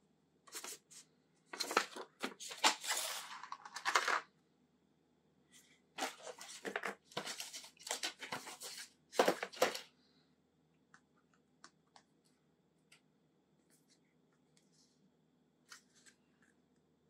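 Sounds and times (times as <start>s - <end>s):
packaging rustling and tearing: 1.6s - 4.0s, 6.0s - 9.9s.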